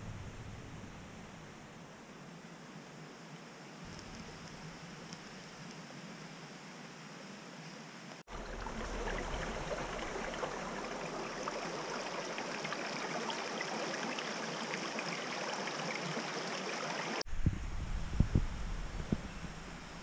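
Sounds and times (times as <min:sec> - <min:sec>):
creek babbling over rocks: 0:08.3 - 0:17.2.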